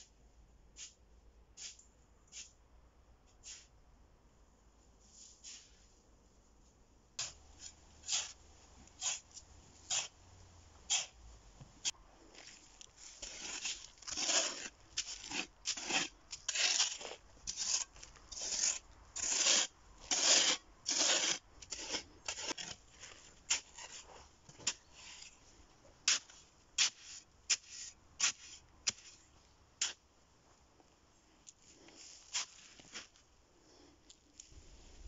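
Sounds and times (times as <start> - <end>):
shovel scraping sandy soil: 0.7 - 1.0, 1.6 - 2.6, 3.4 - 3.8, 5.1 - 5.9, 7.2 - 11.2, 11.8 - 25.4, 26.0 - 30.0, 31.7 - 33.3.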